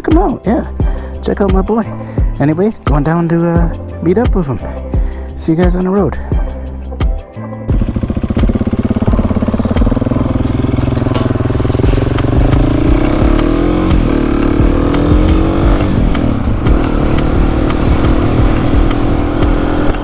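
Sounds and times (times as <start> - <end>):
motorcycle engine accelerating: 7.6 - 20.0.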